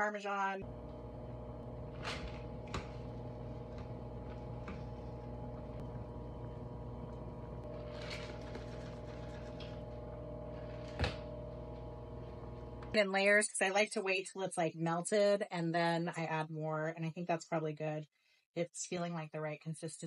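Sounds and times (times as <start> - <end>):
steady mechanical hum: 0.6 - 13.0.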